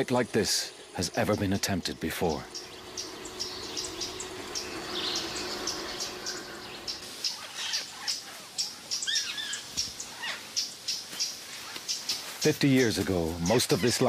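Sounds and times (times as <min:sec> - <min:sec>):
faint low hum: 0:00.0 - 0:07.7
whistled bird calls: 0:02.5 - 0:13.0.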